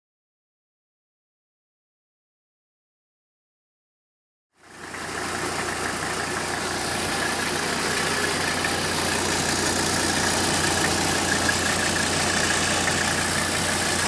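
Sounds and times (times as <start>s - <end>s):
diesel engine idling: 4.6s - 14.0s.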